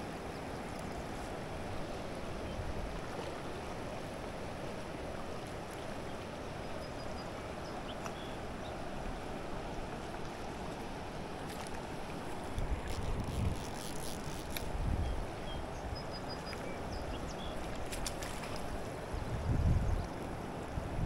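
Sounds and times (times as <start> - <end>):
river rushing: 0.0 - 19.4
wind buffeting microphone: 12.6 - 16.0, 19.1 - 21.0.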